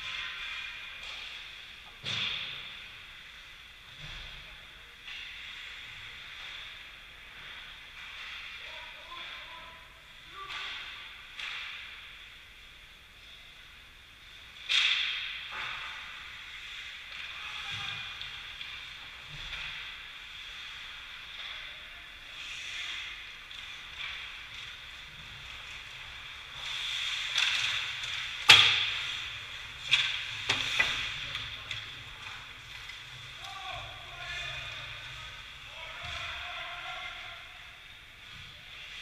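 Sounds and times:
cracks of stick and puck: 10.5s - 12.3s, 14.5s - 21.6s, 22.3s - 33.6s
skate blades scraping ice: 22.3s - 36.4s.

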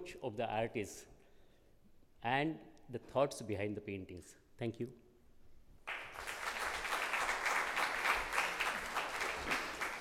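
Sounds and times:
audience applauding: 5.9s - 10.0s.

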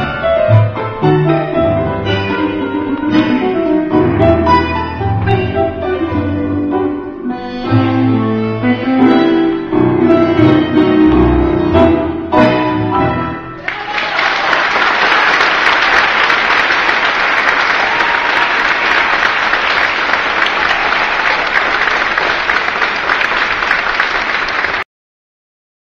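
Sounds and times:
tango orchestra chord: 0.0s - 13.6s
audience applause: 13.6s - 24.9s.

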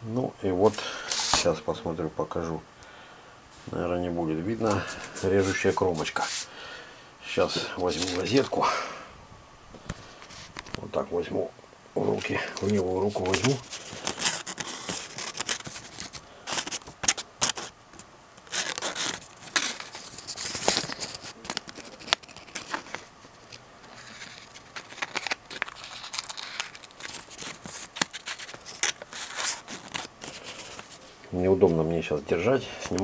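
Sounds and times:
paper and cardboard rustling: 1.0s - 1.6s, 4.6s - 6.5s, 7.4s - 8.6s, 12.1s - 17.7s, 18.5s - 31.9s.

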